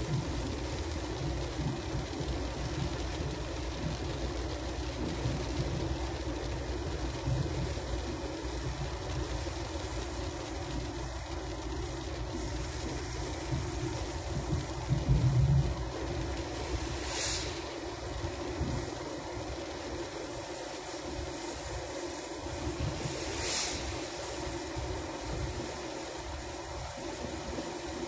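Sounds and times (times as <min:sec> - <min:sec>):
car engine and road noise: 0:00.0 - 0:28.0.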